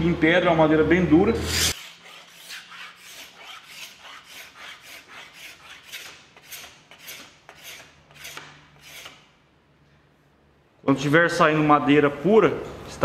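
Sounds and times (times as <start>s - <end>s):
steel scraper scraping wood: 1.4s - 9.3s.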